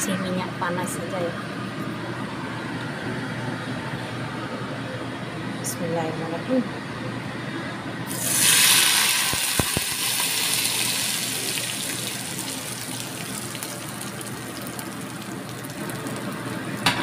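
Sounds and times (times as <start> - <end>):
hot oil pouring: 8.1 - 16.9
loud sizzling: 8.1 - 16.9.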